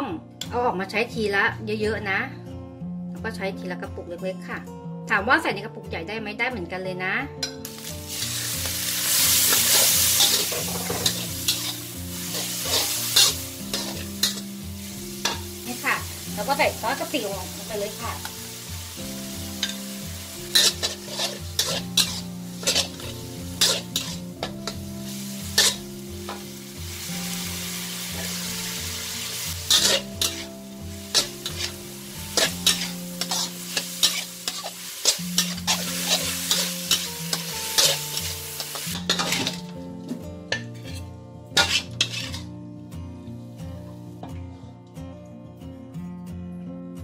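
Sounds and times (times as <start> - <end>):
background music: 0.0 - 47.0
spatula clanking and scraping pan: 7.4 - 16.2, 19.3 - 26.6, 29.5 - 42.5
food sizzling in a wok: 7.5 - 42.6.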